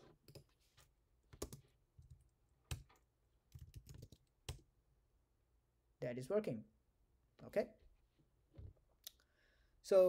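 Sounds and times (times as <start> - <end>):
computer keyboard keystrokes: 1.4 - 4.6.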